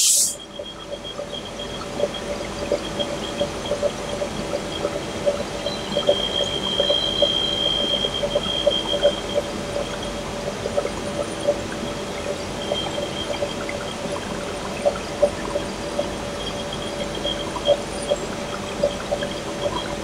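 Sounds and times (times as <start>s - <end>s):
compressed air hissing: 0.0s - 0.4s
high whistle: 0.0s - 0.5s.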